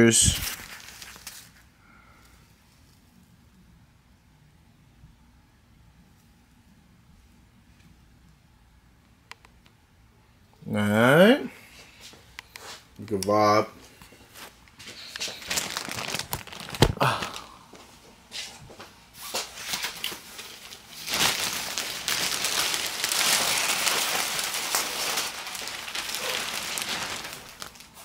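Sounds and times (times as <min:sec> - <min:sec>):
plastic bag crinkling and rustling: 0:00.0 - 0:01.7, 0:14.1 - 0:17.6, 0:19.2 - 0:28.0.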